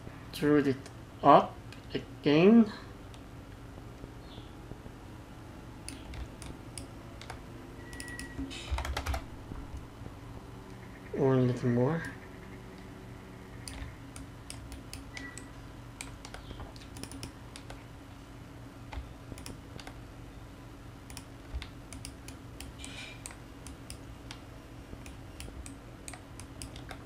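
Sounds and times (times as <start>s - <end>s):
faint low hum: 0.0s - 27.0s
keyboard and mouse clicking: 5.8s - 9.9s, 13.6s - 17.8s, 18.9s - 20.0s, 21.1s - 24.4s, 25.0s - 27.0s.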